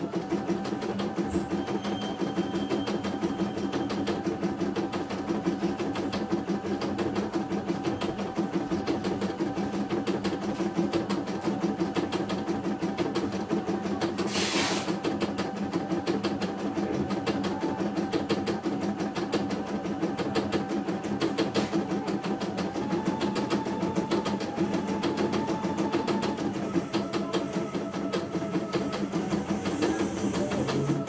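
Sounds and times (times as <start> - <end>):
embroidery machine motor hum: 0.0 - 31.0
brief hiss: 14.3 - 14.9.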